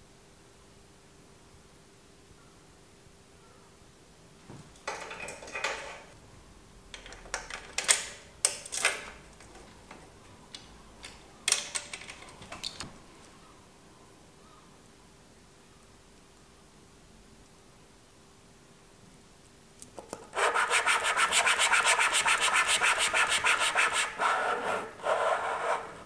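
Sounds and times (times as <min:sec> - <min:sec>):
metal bike parts clicking and rattling: 0:04.8 - 0:06.1, 0:07.0 - 0:10.0, 0:11.0 - 0:12.9.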